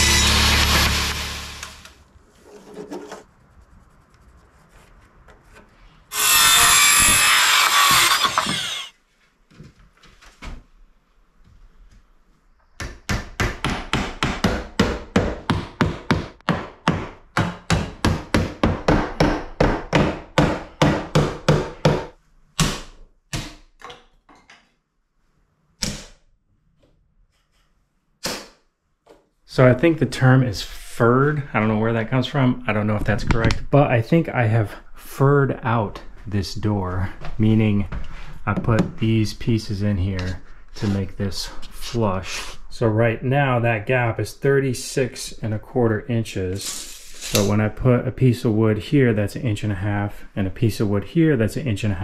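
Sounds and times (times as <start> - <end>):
power saw cutting wood: 0.0 - 2.0, 6.1 - 8.9.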